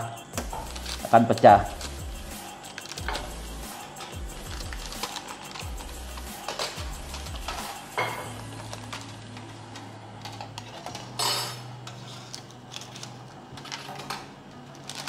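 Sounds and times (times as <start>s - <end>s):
baking paper rustling: 0.4s - 15.0s
metal utensils clinking on tabletop: 7.5s - 8.3s, 10.6s - 12.4s
metal baking tray clattering: 10.7s - 12.3s.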